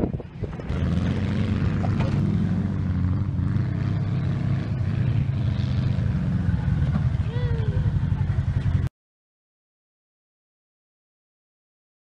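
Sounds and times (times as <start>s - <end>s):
engine running steadily: 0.0s - 8.9s.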